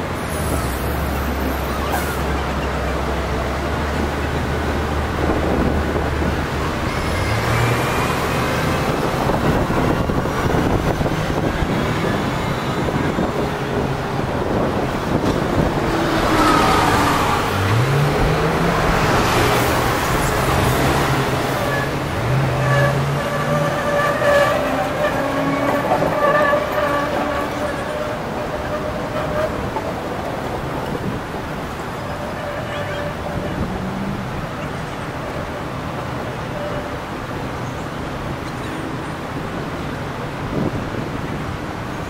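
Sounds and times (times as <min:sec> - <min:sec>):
bus engine pulling away: 0:00.0 - 0:32.0
buses and taxis passing: 0:00.0 - 0:42.0.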